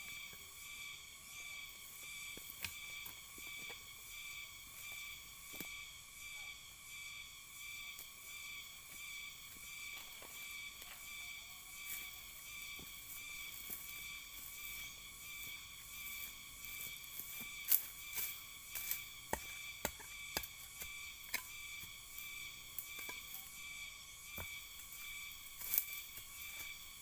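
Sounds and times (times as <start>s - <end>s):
insect chorus: 0.0s - 27.0s
cracks and crunches of dry grass: 24.9s - 27.0s.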